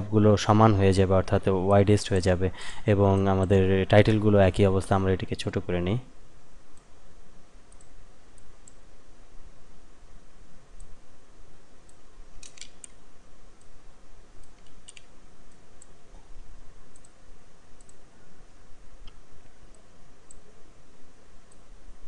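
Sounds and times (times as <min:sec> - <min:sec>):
low hum and hiss: 0:00.0 - 0:22.0
computer mouse clicking: 0:07.7 - 0:08.8, 0:11.9 - 0:13.0, 0:14.4 - 0:16.0, 0:16.9 - 0:17.2, 0:17.8 - 0:18.0.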